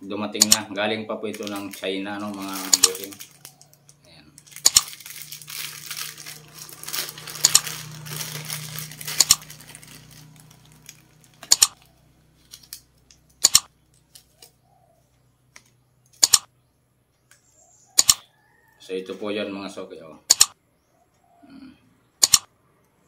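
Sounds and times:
plastic wrapping crinkling: 1.2s - 14.6s.

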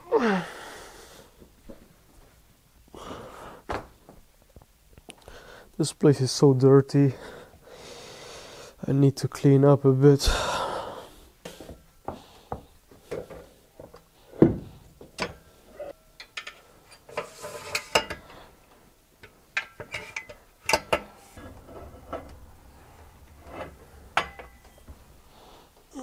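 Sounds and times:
metal clanks and knocks: 19.2s - 25.2s.

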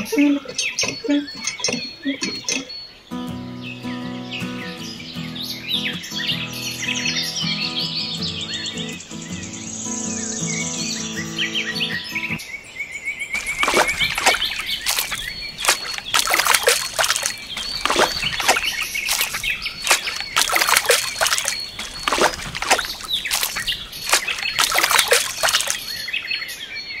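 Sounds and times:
birds chirping: 0.0s - 27.0s
water splashing into steel bowl: 13.4s - 25.9s.

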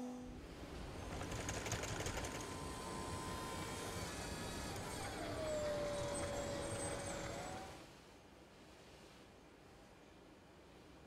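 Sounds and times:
small machine clattering: 1.0s - 7.8s
motor whine: 2.2s - 7.8s.

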